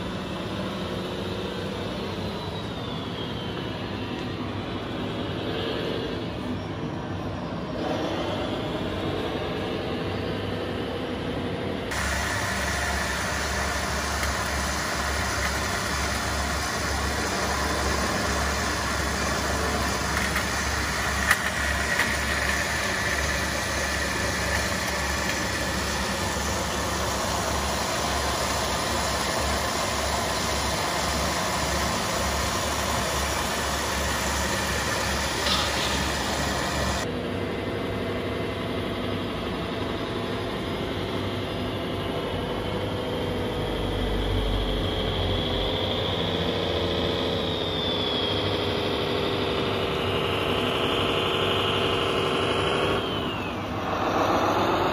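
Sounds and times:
model truck engine idling: 0:08.6 - 0:37.1.

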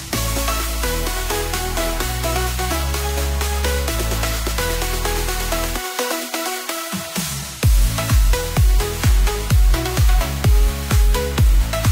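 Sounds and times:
electronic dance music: 0:00.0 - 0:11.9
booming kick drums: 0:07.6 - 0:11.9.

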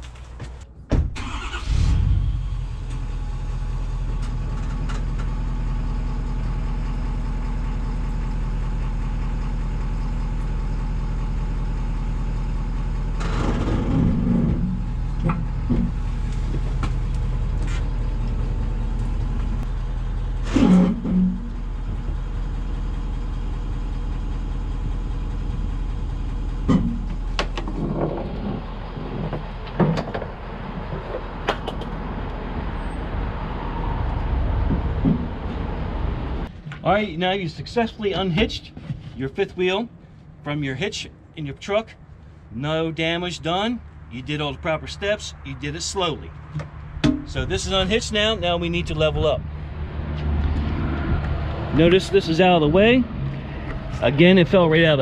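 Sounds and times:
pickup truck engine running: 0:01.2 - 0:40.2
trailer hitch clunks: 0:13.0 - 0:22.2, 0:26.5 - 0:32.0, 0:34.5 - 0:36.8, 0:46.4 - 0:47.6.

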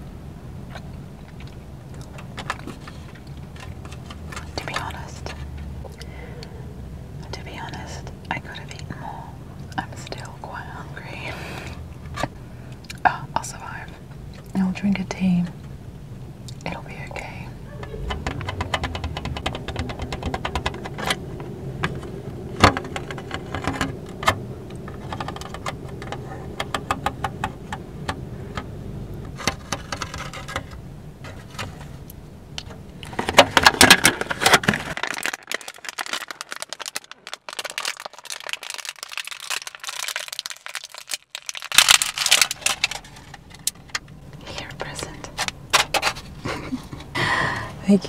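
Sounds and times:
low background rumble: 0:00.0 - 0:48.0
plastic container crackling: 0:00.7 - 0:06.0, 0:16.7 - 0:47.1
plastic crinkling when crushed: 0:33.0 - 0:46.4.

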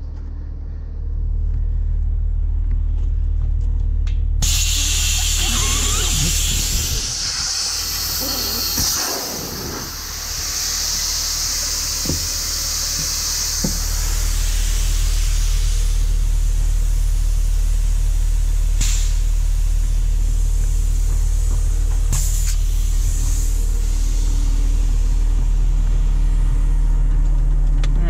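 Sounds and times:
truck diesel engine idling: 0:00.0 - 0:28.0
air hissing: 0:04.4 - 0:26.4.

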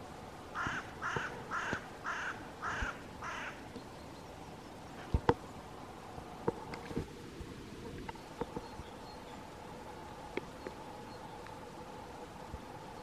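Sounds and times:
crow cawing: 0:00.6 - 0:03.6.

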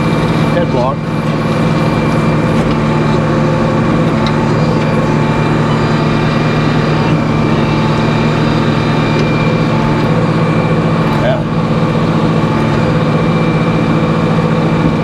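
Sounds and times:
sawmill machinery droning: 0:00.0 - 0:15.0.

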